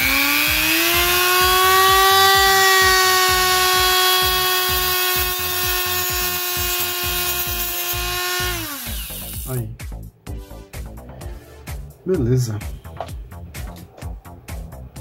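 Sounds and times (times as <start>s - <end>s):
rotary tool whining: 0.0s - 9.5s.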